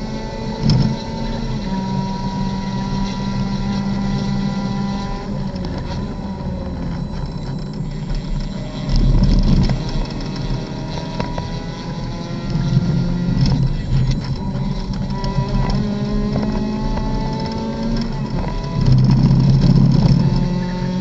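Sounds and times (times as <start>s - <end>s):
race car engine running hard: 0.0s - 21.0s
wind noise: 5.4s - 21.0s.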